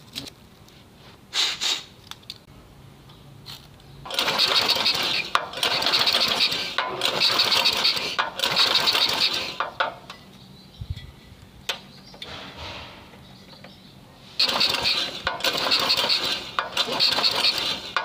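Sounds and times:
pull starter cranking small engine: 4.1s - 10.0s, 14.4s - 18.0s.

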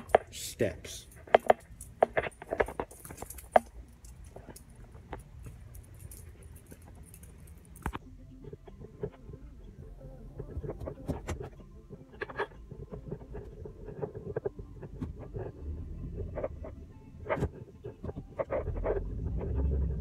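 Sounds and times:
keys jangling: 0.0s - 8.0s.

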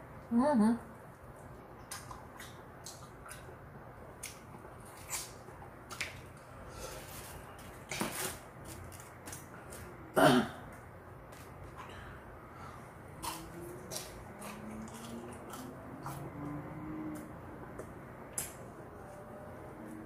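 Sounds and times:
chewing and mouth clicks: 1.4s - 3.6s, 13.2s - 17.3s.

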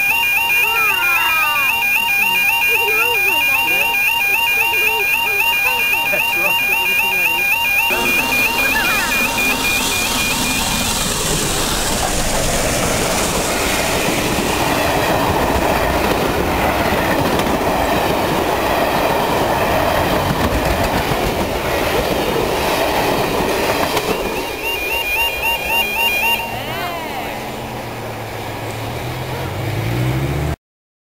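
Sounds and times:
steam locomotive rushing past: 0.0s - 30.6s
coach wheels clattering on rails: 6.0s - 26.6s.

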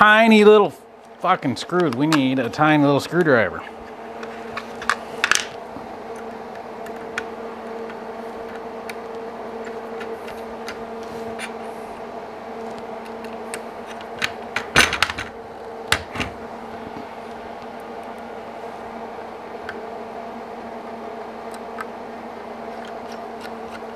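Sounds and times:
steady electrical hum: 0.0s - 23.9s.

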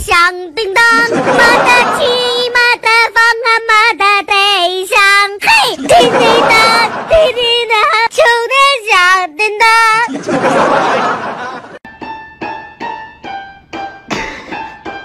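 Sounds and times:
high-pitched childlike singing: 0.0s - 10.2s.

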